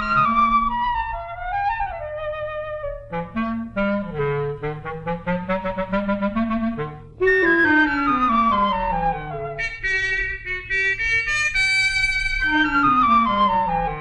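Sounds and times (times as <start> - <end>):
woodwind film score: 0.0 - 14.0.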